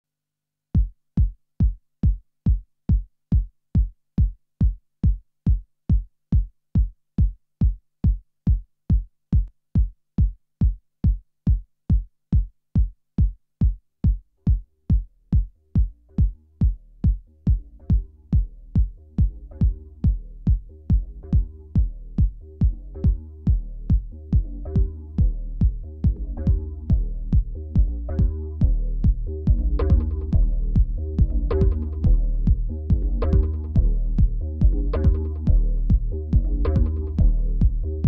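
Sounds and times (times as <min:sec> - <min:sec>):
kick drum beating: 0:00.8 - 0:37.9
bass line: 0:14.9 - 0:38.0
synth notes: 0:22.8 - 0:38.0.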